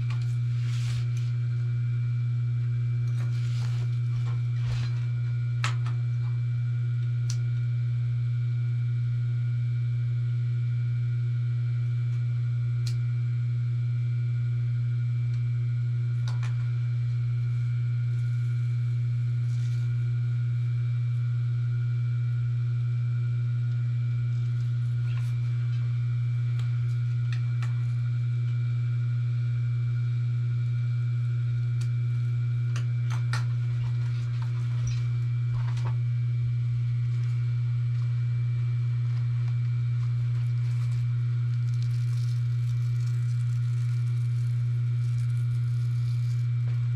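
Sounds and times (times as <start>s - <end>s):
electric motor hum: 0.0s - 46.9s.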